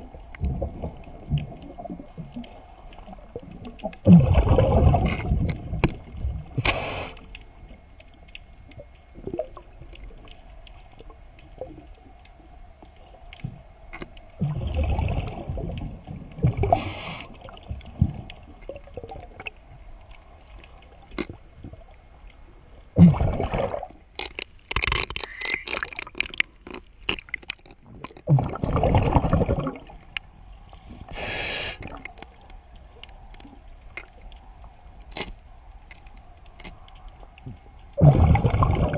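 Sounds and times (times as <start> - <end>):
exhaust bubbles bursting: 4.0 - 5.8, 14.4 - 16.8, 23.0 - 24.0, 28.2 - 30.0, 38.0 - 38.9.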